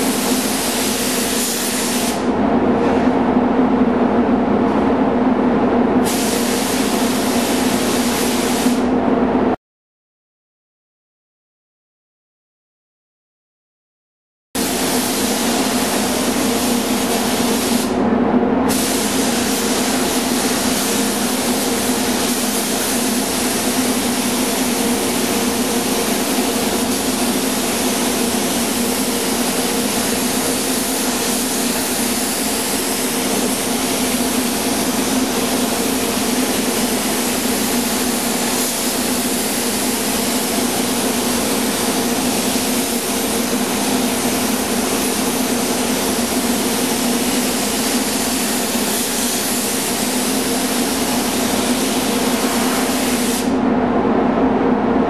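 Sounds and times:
spray gun hissing: 0.0s - 2.3s, 6.0s - 8.8s, 14.6s - 18.0s, 18.7s - 53.5s
low hum of moving air: 0.0s - 9.6s, 14.6s - 55.0s.

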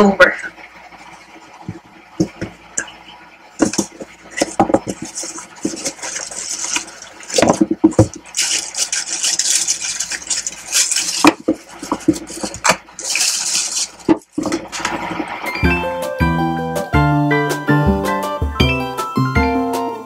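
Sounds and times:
plastic wrapping crinkling: 3.6s - 15.4s.

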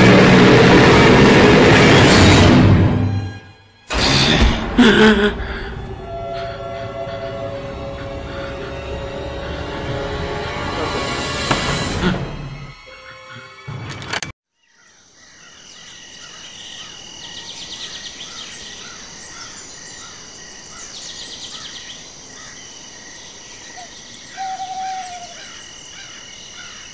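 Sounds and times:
scary music with loud burst: 0.0s - 14.1s
crickets and insects chirring: 14.6s - 26.9s
insect trills: 14.6s - 26.9s
bird call: 23.8s - 26.8s.

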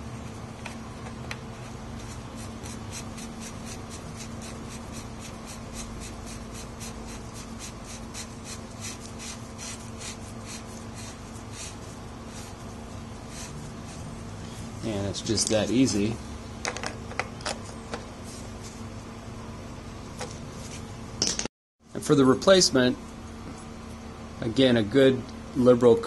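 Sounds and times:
scratchy rubbing of threaded cup: 2.0s - 14.1s.

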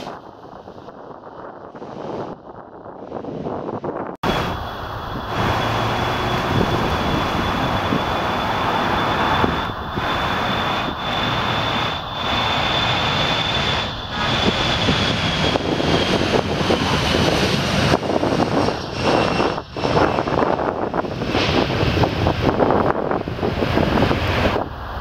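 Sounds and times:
jet engines running with whine: 0.0s - 25.0s.

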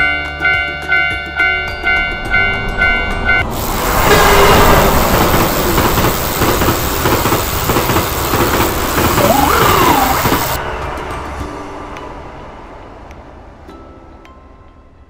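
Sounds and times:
railroad crossing alarm ringing: 0.0s - 10.6s
train passing rumble: 1.4s - 13.6s.

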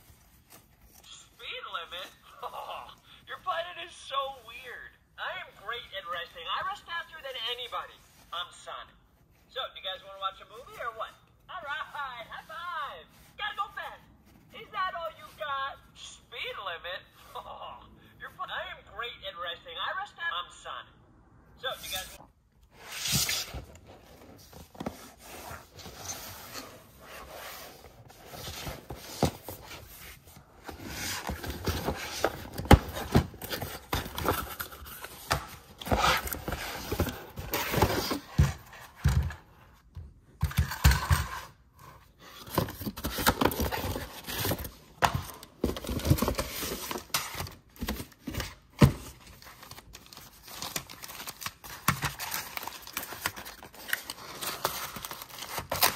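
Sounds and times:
cardboard scraping and sliding: 21.8s - 38.9s.

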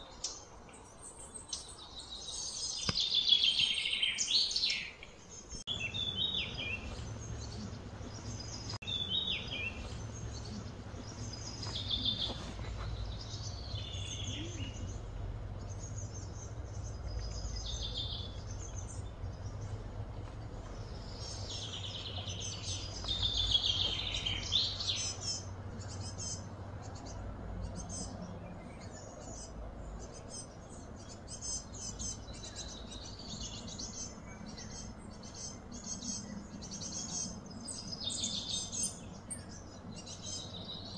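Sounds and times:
small birds chirping: 0.0s - 40.9s
steady low hum: 5.3s - 40.9s.

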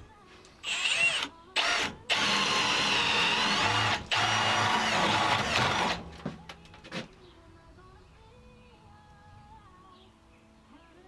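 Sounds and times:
cordless drill boring into wood: 0.6s - 6.0s.

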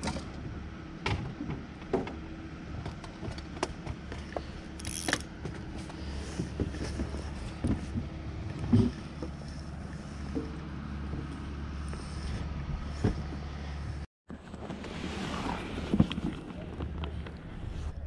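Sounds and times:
clicks and knocks of gear: 2.8s - 8.1s
boat motor idling: 3.1s - 14.0s.

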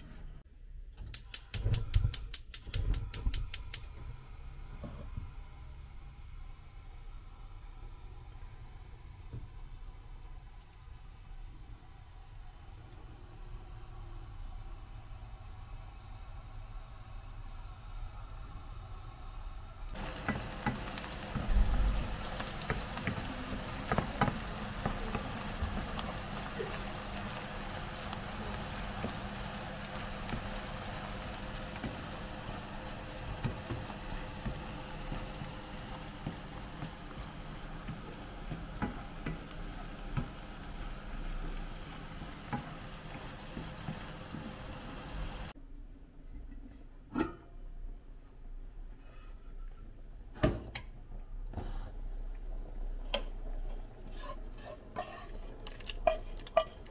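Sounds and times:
onions sizzling in oil: 13.4s - 45.6s, 56.0s - 56.9s
wooden spoon scraping a pan: 53.1s - 56.9s.

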